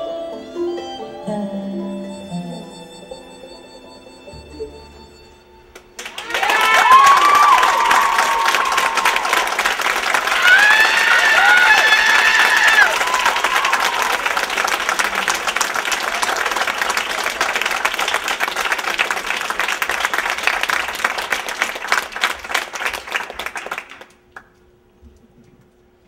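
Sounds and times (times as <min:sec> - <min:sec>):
audience applauding: 0:06.0 - 0:24.6.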